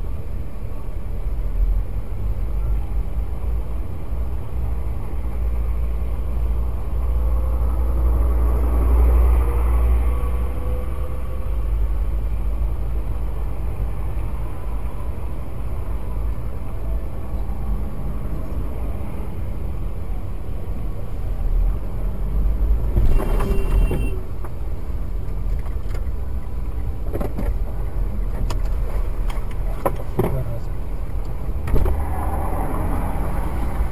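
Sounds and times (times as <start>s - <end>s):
road traffic rumble: 0.0s - 33.9s
bus passing: 30.4s - 33.9s.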